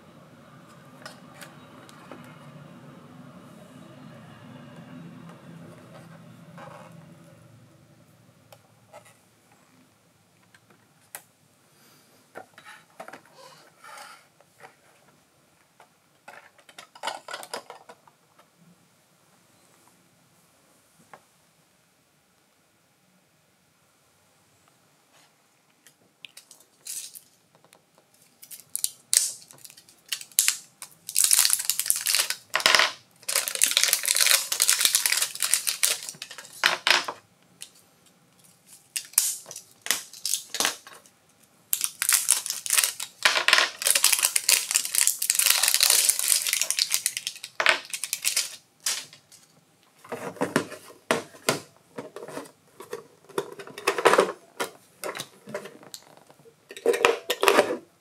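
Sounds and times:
crinkling plastic packaging: 0:28.2 - 0:37.8, 0:38.4 - 0:41.1, 0:41.7 - 0:49.5.

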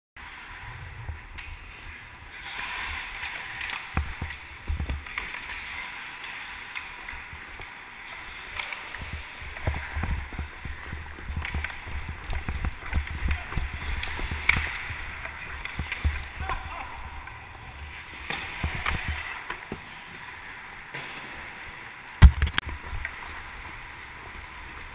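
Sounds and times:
rumble of skating strides: 0:00.2 - 0:24.9
skates scraping on ice: 0:00.2 - 0:24.9
sharp clacks of sticks and puck: 0:08.4 - 0:17.4.

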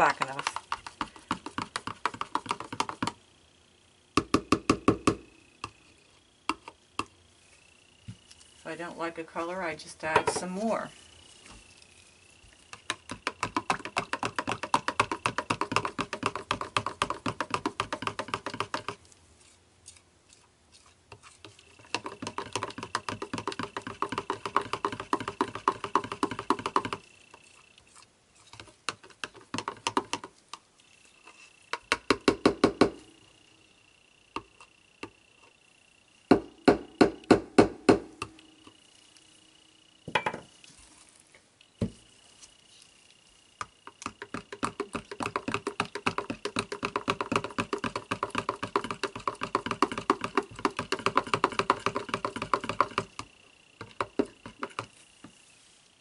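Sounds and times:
faint high whine: 0:05.1 - 0:12.9, 0:38.0 - 0:44.2.

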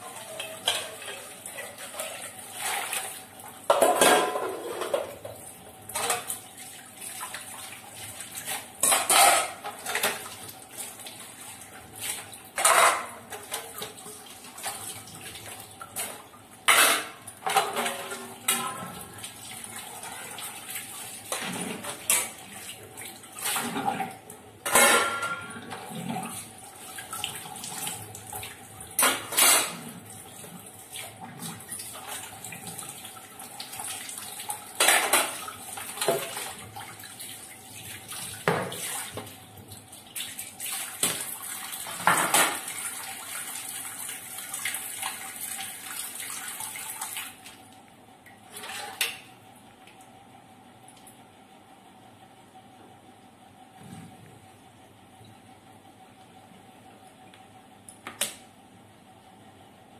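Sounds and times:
dishes clattering: 0:00.2 - 0:02.1, 0:03.7 - 0:05.3, 0:08.8 - 0:10.2, 0:24.6 - 0:25.9.

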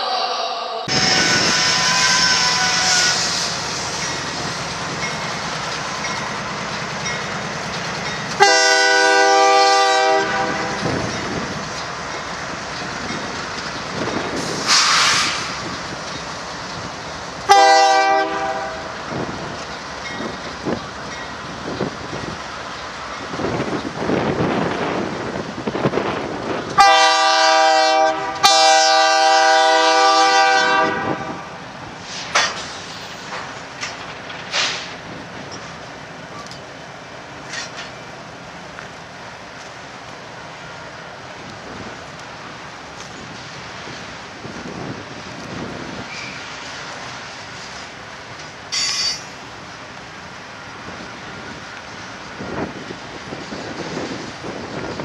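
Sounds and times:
diesel locomotive rumbling: 0:00.0 - 0:55.0
train air horn chord: 0:08.4 - 0:10.8, 0:17.5 - 0:18.9, 0:26.8 - 0:31.5.

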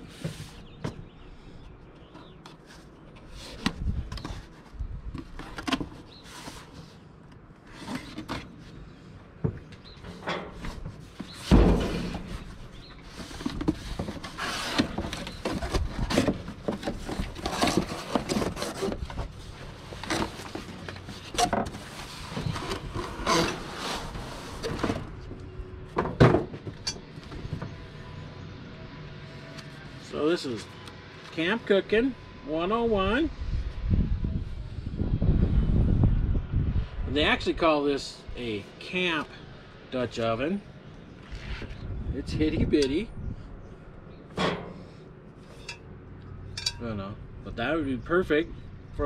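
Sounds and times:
cardboard rustling and tearing: 0:11.1 - 0:25.1
heavy thump: 0:11.5 - 0:12.5.

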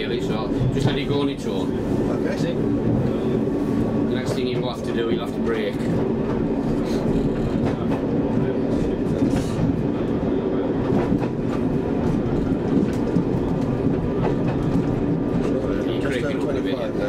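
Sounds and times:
wheels rumbling on rail: 0:00.0 - 0:17.0.

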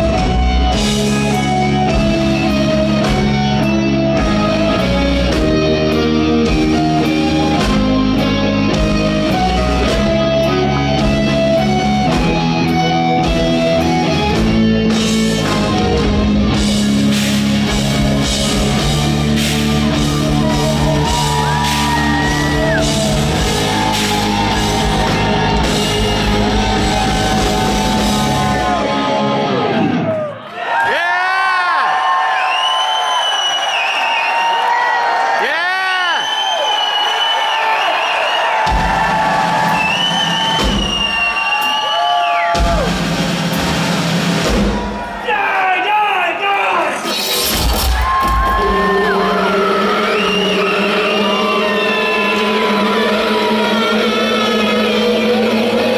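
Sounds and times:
electric guitar lead line: 0:00.0 - 0:30.2
live rock band: 0:00.0 - 0:30.4, 0:38.5 - 0:45.2, 0:46.9 - 0:55.9.

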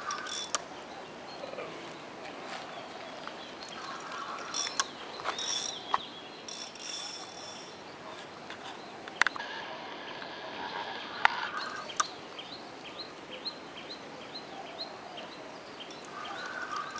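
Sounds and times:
fishing reel ticking and whirring: 0:00.0 - 0:00.6, 0:03.7 - 0:07.9, 0:16.0 - 0:16.9
sharp reel clicks: 0:00.0 - 0:00.7, 0:03.7 - 0:07.8, 0:11.2 - 0:12.1.

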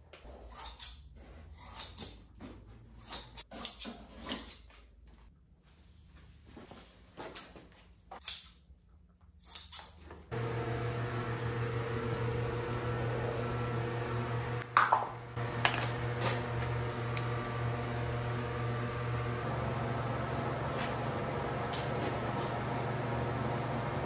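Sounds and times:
box fans humming: 0:10.3 - 0:24.0.

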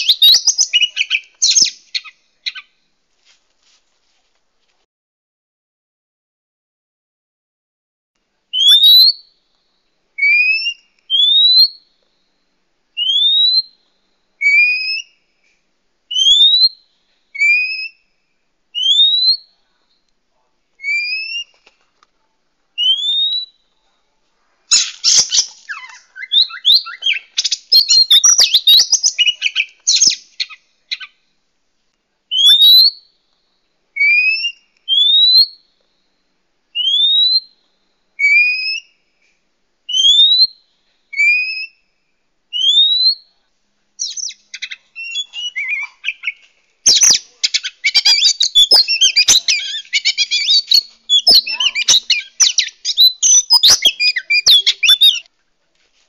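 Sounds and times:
bird chattering song: 0:00.0 - 0:02.7, 0:24.7 - 0:31.2, 0:44.0 - 0:55.3.

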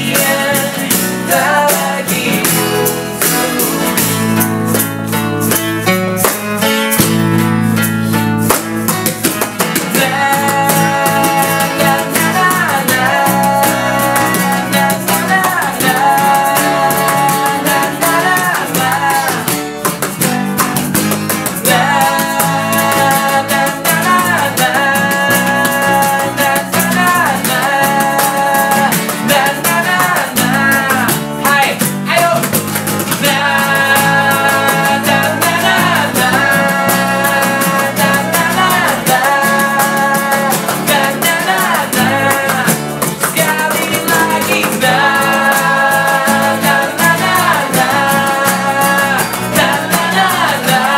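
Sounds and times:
man singing lead: 0:00.0 - 0:04.8, 0:09.5 - 0:20.3, 0:21.3 - 0:50.9
backing voices singing: 0:00.0 - 0:05.1, 0:09.5 - 0:50.9
electric bass: 0:00.0 - 0:50.9
strummed acoustic guitars: 0:00.0 - 0:50.9
egg shaker rattling: 0:31.9 - 0:50.9.

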